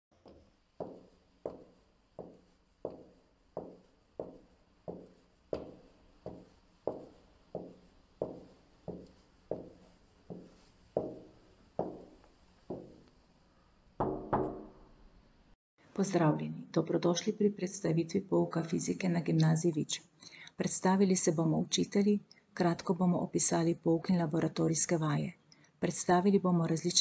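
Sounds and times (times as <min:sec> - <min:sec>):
footsteps in a hallway: 0:00.2 - 0:13.1.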